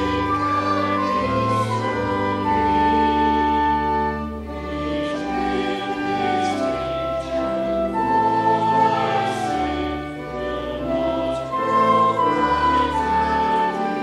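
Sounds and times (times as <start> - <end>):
choir singing: 0.0 - 14.0
sustained accompaniment with deep bass: 0.0 - 14.0.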